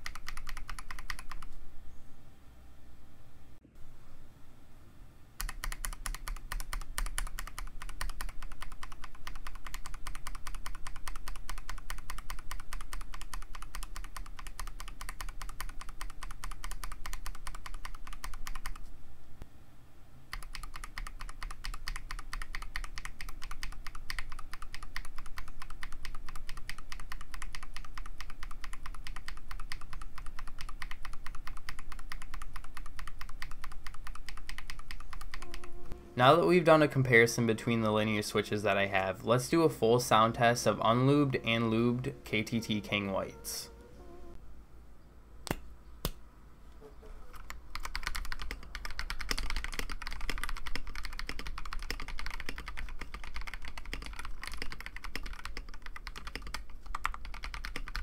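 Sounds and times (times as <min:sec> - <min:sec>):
mechanical keyboard typing: 0:00.0 - 0:01.5, 0:05.4 - 0:18.8, 0:20.3 - 0:35.8, 0:47.3 - 0:58.0.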